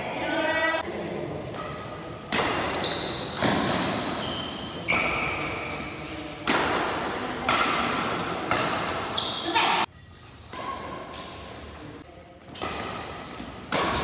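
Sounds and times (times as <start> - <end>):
racket hitting shuttlecock: 1.5 - 9.6, 12.5 - 14.0
shoes squeaking on court floor: 1.6 - 7.6, 8.5 - 11.5.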